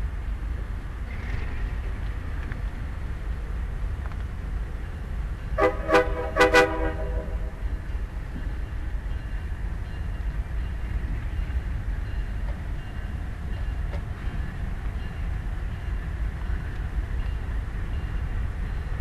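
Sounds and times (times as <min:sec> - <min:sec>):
train rolling past: 0:00.0 - 0:19.0
locomotive horn blasts: 0:05.6 - 0:07.6.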